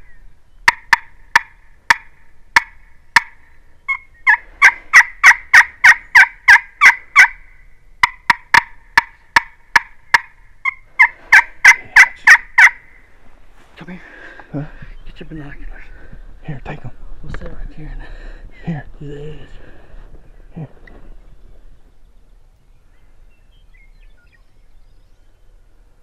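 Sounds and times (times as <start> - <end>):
turkey call yelps: 0.0 - 13.1.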